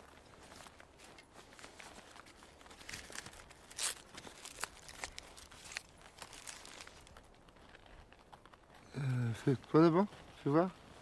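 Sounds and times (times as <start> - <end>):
small object crinkling: 0.0 - 11.0
loud crackle: 2.8 - 10.6.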